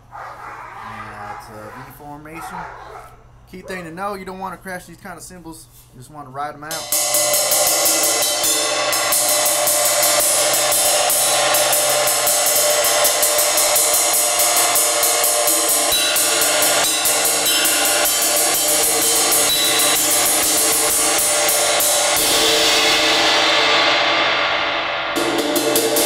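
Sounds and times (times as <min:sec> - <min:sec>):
cymbal ringing: 0:06.7 - 0:26.0
ride cymbal played with drumstick: 0:06.7 - 0:26.0.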